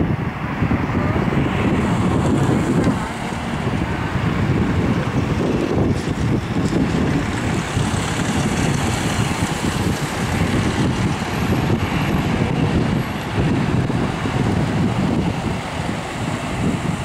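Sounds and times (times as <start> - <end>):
jet engines at takeoff thrust: 0.0 - 17.0.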